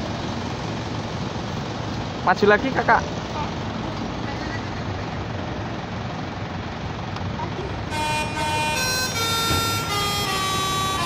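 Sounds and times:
musical bus horn tune: 7.8 - 11.0.

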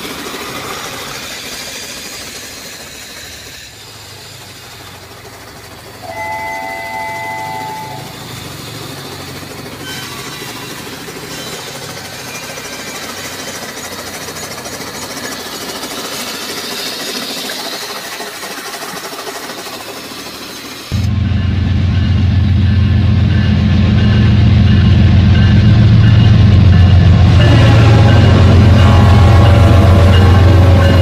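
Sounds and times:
water hissing: 0.0 - 21.0
toy train whistle: 6.0 - 8.4, 27.4 - 31.0.

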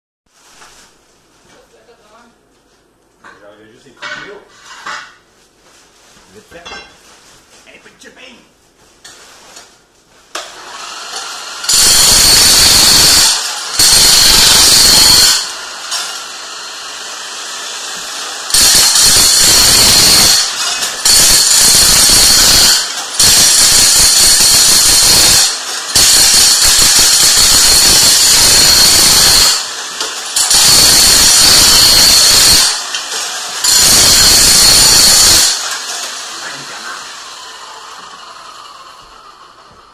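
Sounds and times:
power hammer chipping tiles: 10.4 - 39.3.

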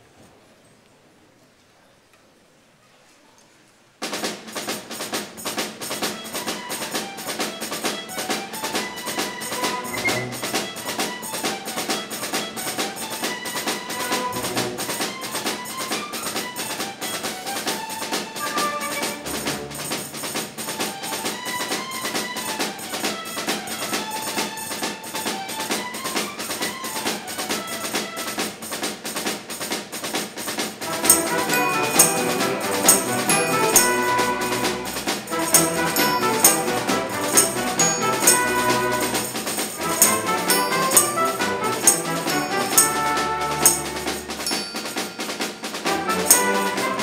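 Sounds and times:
drum kit beat: 4.1 - 16.5, 17.2 - 22.2, 27.2 - 47.0
hand percussion: 4.2 - 47.0
strings orchestra playing: 6.0 - 28.4, 30.8 - 47.0.

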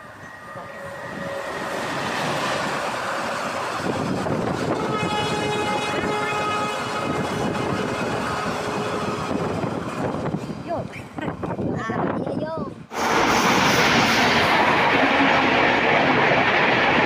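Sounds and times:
passenger train passing at speed: 0.0 - 17.0
train horn blast: 0.4 - 2.0, 4.6 - 9.6.

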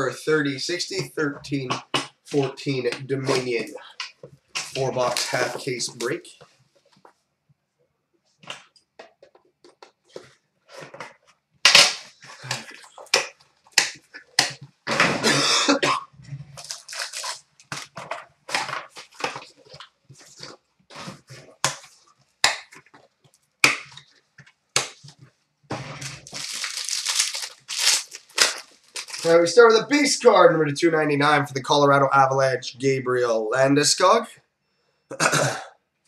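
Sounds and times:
cardboard rustle: 25.8 - 29.4.

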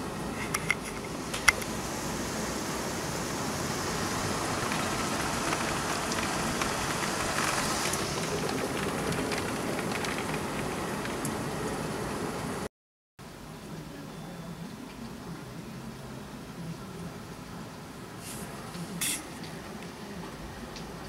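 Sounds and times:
heavy rain falling: 0.0 - 12.7, 18.2 - 21.0.

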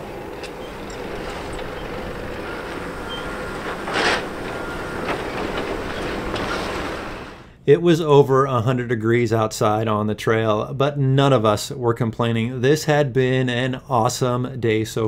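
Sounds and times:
clicks and rattles: 0.0 - 6.9
off-road vehicle driving on rocks: 0.0 - 7.4.

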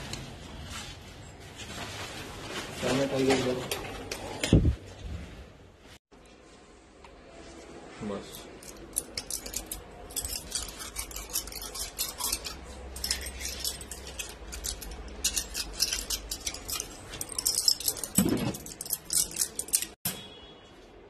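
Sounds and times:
small metal objects jingling: 8.8 - 20.0.

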